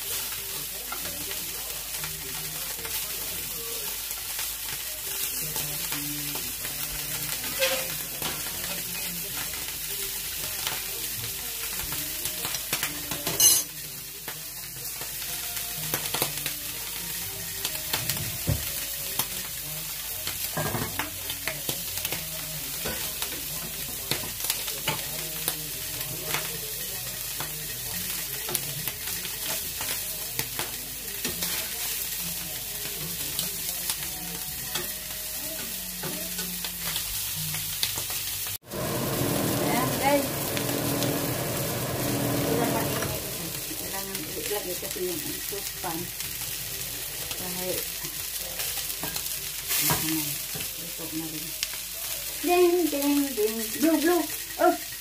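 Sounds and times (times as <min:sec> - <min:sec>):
fish sizzling in a skillet: 0:00.0 - 0:55.0
tongs and spatula scraping: 0:07.4 - 0:08.8.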